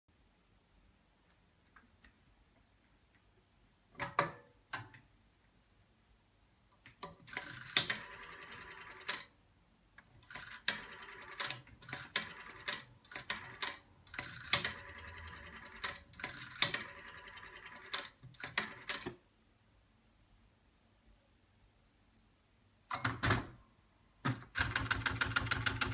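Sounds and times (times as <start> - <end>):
rotary dial whirring and clicking: 7.1 - 9.3, 10.0 - 19.1.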